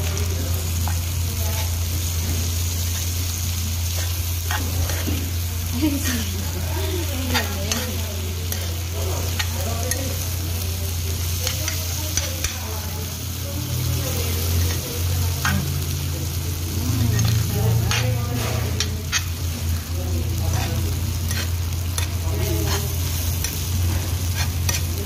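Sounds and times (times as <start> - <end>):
food sizzling on hot plate: 0.0 - 25.0
spoon scraping metal plate: 20.5 - 25.0.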